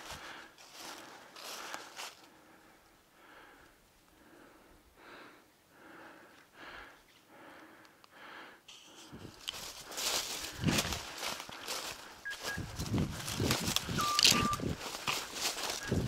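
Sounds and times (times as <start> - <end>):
footsteps in dry leaves: 0.0 - 2.3, 8.9 - 16.0
man breathing rhythmically: 0.0 - 16.0.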